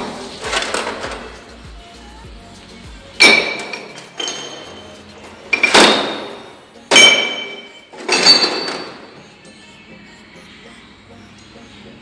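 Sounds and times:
metal-on-metal strikes ringing: 3.2s - 4.8s.

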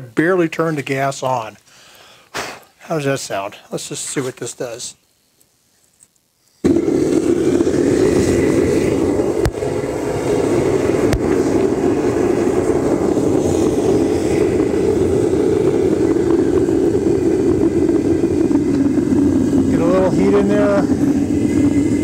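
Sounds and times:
gas burner flame rushing: 6.6s - 22.0s.

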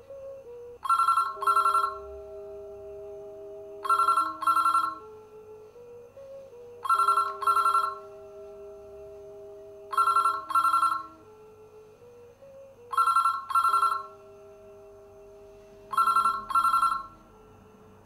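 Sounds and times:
low held tones: 0.0s - 18.0s
desk telephone ringing: 0.8s - 2.1s, 3.8s - 5.0s, 6.8s - 8.1s, 9.9s - 11.1s, 12.9s - 14.2s, 15.9s - 17.2s.

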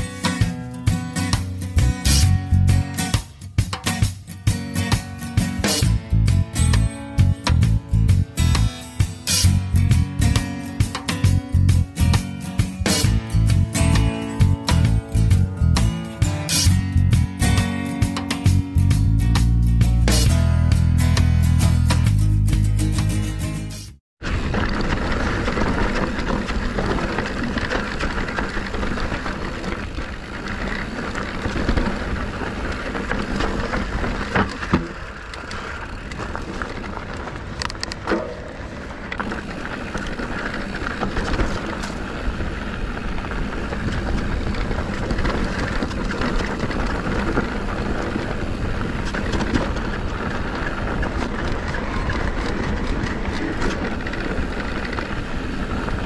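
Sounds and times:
bike tyre and trail noise: 0.0s - 22.1s, 24.2s - 56.0s
bike rattling: 0.0s - 56.0s
bike knocking on rocks: 24.3s - 56.0s
wind on microphone: 35.8s - 56.0s.

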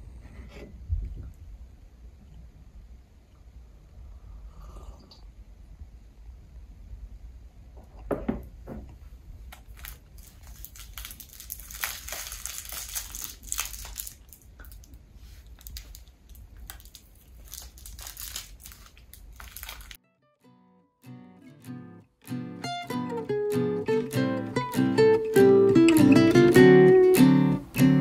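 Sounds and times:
low steady hum: 0.0s - 20.0s
rustling and crinkling: 8.7s - 20.0s
small clicks and crunches: 9.5s - 20.0s.

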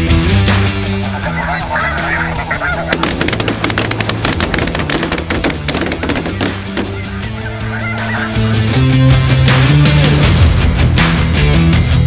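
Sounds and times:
music: 0.0s - 12.0s
geese honking: 0.4s - 9.3s.

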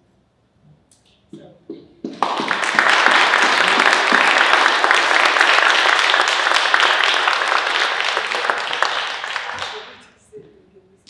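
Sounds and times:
audience applauding: 2.0s - 10.1s.

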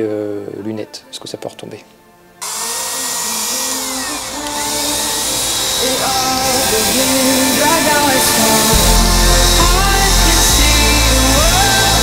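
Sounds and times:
background music with melody: 0.0s - 12.0s
paint spray gun hissing: 2.4s - 12.0s.

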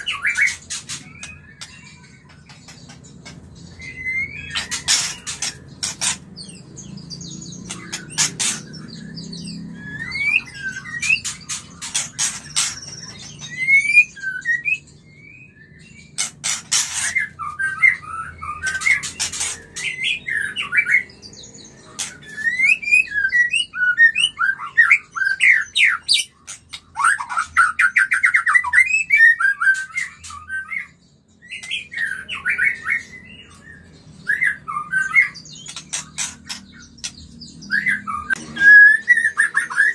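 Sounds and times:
bird singing whistled phrases: 9.5s - 11.3s, 13.1s - 15.9s, 37.6s - 39.9s.

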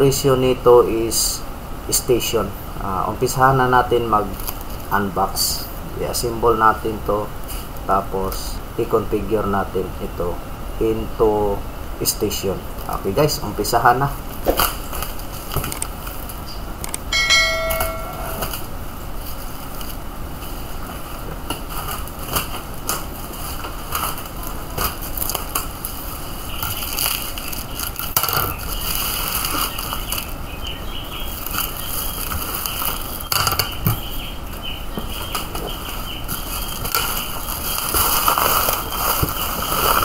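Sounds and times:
plastic bag crinkling: 18.4s - 30.4s, 36.3s - 40.0s.

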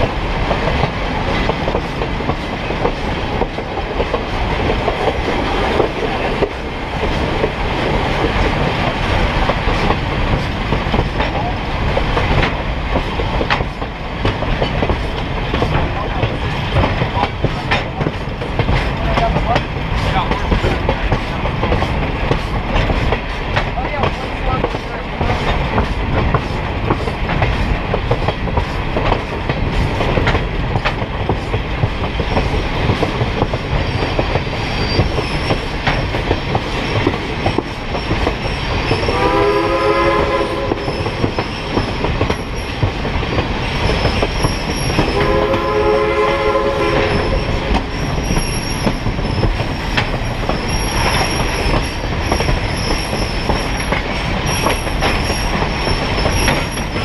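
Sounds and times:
train wheels rumbling on rail: 0.0s - 57.0s
high wheel squeal: 33.7s - 36.0s, 36.8s - 39.5s, 40.4s - 42.8s, 43.7s - 45.2s, 47.0s - 57.0s
locomotive horn blasts: 39.0s - 40.9s, 45.1s - 47.4s.

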